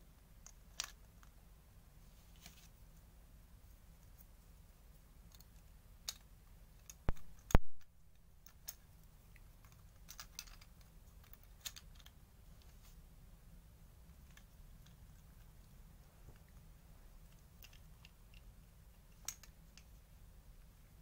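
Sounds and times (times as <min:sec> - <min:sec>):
toy car parts clicking: 0:09.4 - 0:12.2, 0:19.1 - 0:19.9.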